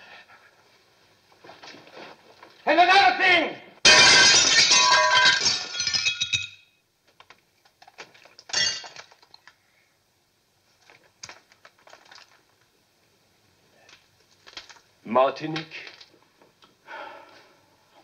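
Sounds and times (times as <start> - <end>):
glass pane shattering: 3.8 - 6.7, 8.5 - 9.2
loose glass pieces clinking: 3.9 - 6.6, 8.4 - 9.5.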